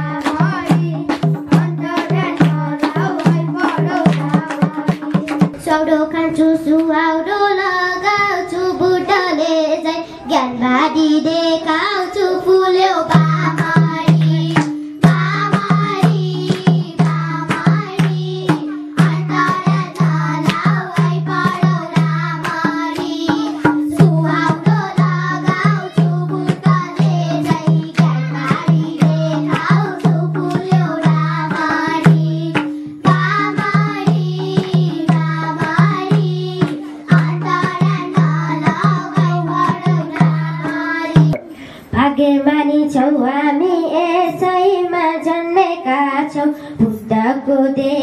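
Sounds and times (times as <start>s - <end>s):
hand drum beat: 0.0s - 5.6s, 13.1s - 41.5s
girls singing in unison: 0.0s - 48.0s.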